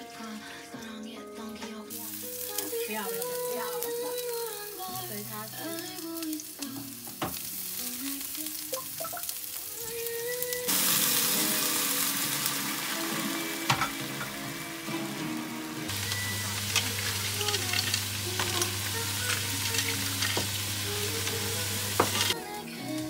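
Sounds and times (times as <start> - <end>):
food sizzling in oil: 1.9 - 23.0
wine pouring into pan: 8.7 - 22.4.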